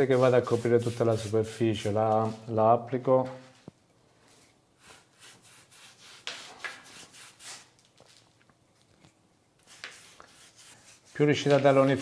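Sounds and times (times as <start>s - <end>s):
brush strokes on board: 0.0s - 2.5s, 9.6s - 12.0s.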